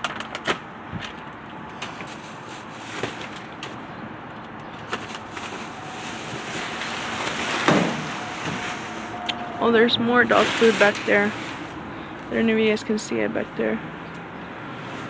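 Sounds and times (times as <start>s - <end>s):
outdoor background hiss: 4.6s - 14.0s
grabber pole prodding plastic bags: 4.8s - 11.8s.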